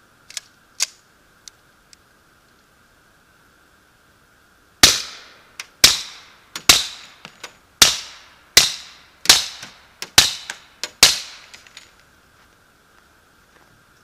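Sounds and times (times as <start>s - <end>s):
suppressed pistol shots: 4.8s - 11.6s.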